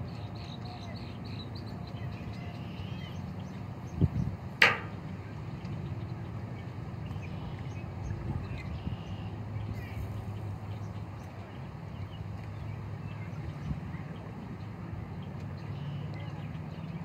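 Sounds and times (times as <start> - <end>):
wind and lake water rumble: 0.0 - 17.0
dull thump: 4.6 - 5.0
sharp click: 4.6 - 5.0.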